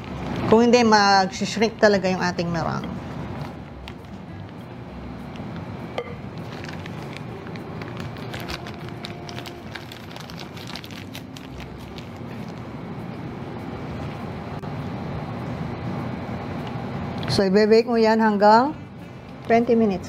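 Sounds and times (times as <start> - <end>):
plastic piping bag rustling: 6.3 - 12.8
small crinkles: 6.4 - 12.7.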